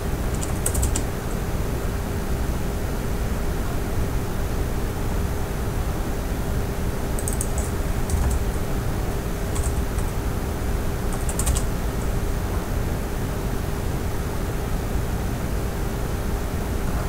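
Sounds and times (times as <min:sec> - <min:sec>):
faint hum: 0:00.0 - 0:17.0
keyboard typing: 0:00.3 - 0:01.2, 0:07.2 - 0:10.4, 0:11.0 - 0:12.1.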